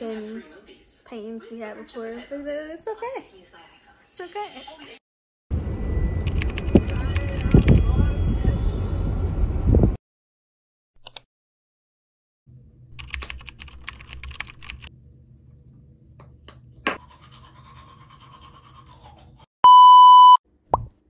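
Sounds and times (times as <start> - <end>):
test-tone beep: 19.6 - 20.4.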